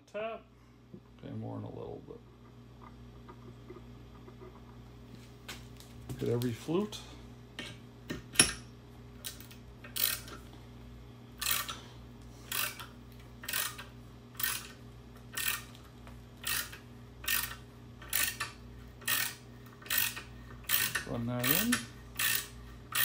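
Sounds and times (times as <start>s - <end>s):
tap wrench ratchet rasp: 9.9s - 10.4s, 11.4s - 11.8s, 12.5s - 15.7s, 16.4s - 23.0s.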